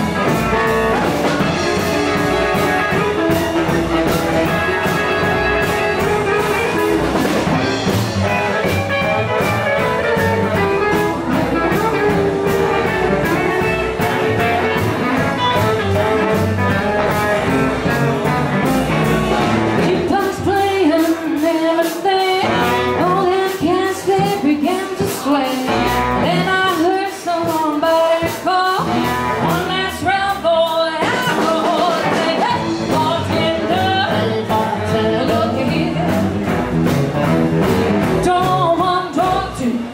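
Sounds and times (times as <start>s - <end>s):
bass: 0.0s - 39.9s
drums: 0.0s - 39.9s
guitar: 0.0s - 39.9s
person singing: 19.7s - 36.6s, 38.0s - 39.9s.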